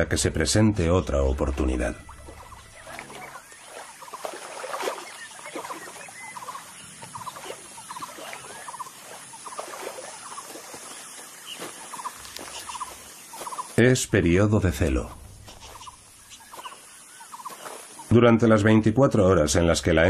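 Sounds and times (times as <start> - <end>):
high squeaky animal calls: 15.4 - 17.6.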